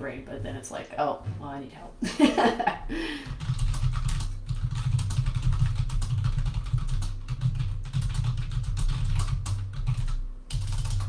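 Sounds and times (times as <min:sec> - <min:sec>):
fast typing on computer keyboard: 0:03.2 - 0:11.0.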